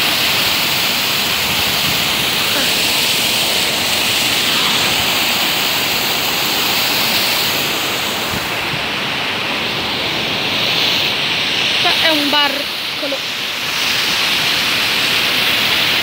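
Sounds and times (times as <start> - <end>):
fountain water splashing into basin: 0.0 - 16.0.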